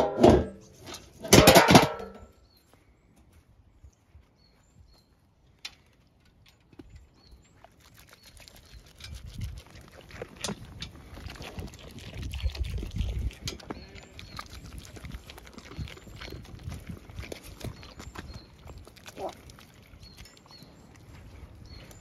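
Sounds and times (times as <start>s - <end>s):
metal feed bin clattering: 0.0s - 2.2s
sheep crunching feed: 5.8s - 22.0s.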